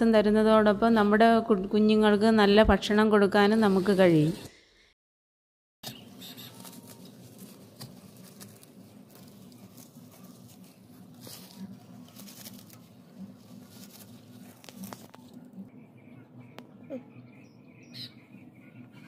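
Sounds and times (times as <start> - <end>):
stalks rustling and snapping: 5.9 - 15.4
low background hum: 5.9 - 19.0.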